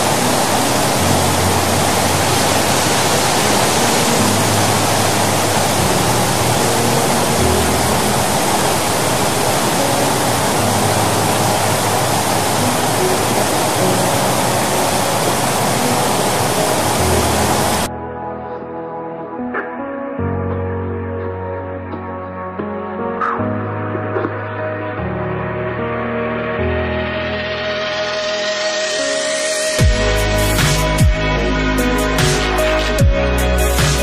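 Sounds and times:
water rushing through spillway: 0.0 - 17.9.

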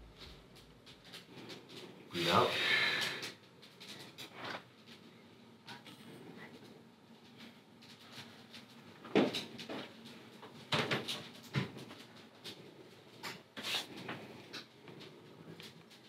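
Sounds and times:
knocks and clatters: 7.3 - 13.5.

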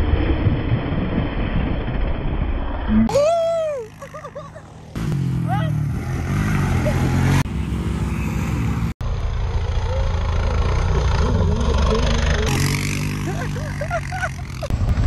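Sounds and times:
quad bike engines running: 3.1 - 15.0.

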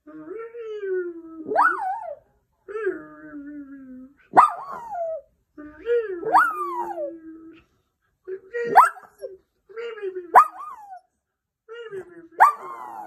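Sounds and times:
small dog howling calls: 1.4 - 2.2.

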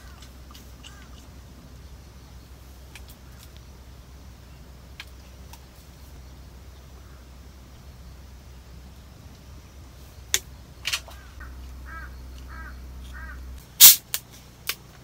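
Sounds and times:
crow cawing: 0.0 - 1.2, 7.0 - 7.3, 11.0 - 13.5.

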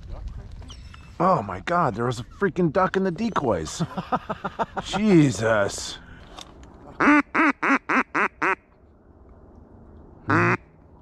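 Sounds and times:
duck call quacking: 7.0 - 8.6, 10.3 - 10.6.

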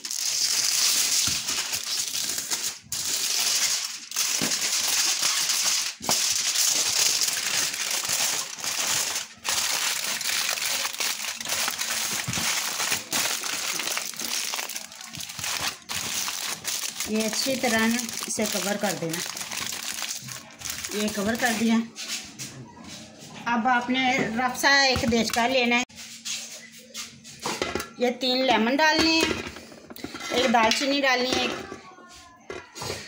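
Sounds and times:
aluminium foil crinkling: 0.0 - 21.9.

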